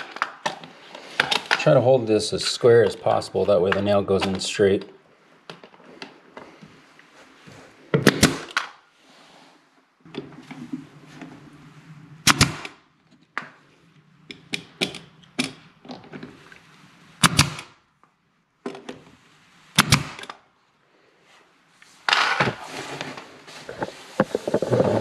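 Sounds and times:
nail gun firing: 0:08.0 - 0:08.7, 0:12.2 - 0:12.8, 0:17.2 - 0:17.8, 0:19.8 - 0:20.3
rustling scrape: 0:21.3 - 0:25.0.

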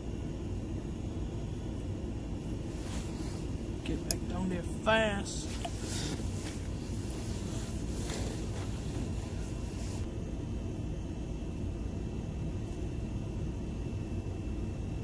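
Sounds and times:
faint high whine: 0:00.0 - 0:15.0
soft hiss: 0:02.6 - 0:10.1.

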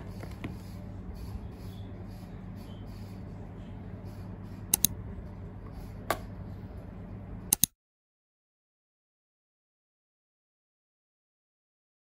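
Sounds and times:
steady low hum: 0:00.0 - 0:07.7.

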